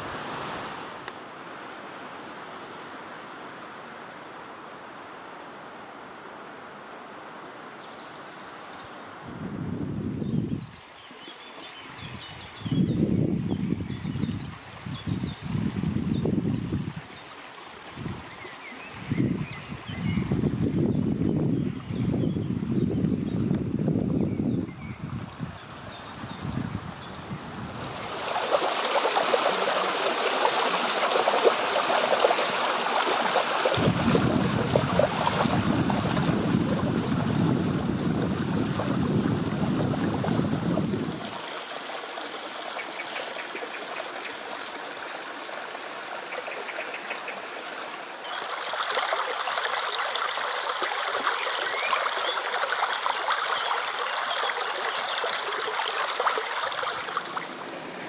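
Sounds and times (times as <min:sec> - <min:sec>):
stream trickling over stones: 0:10.6 - 0:20.2, 0:27.7 - 0:58.0.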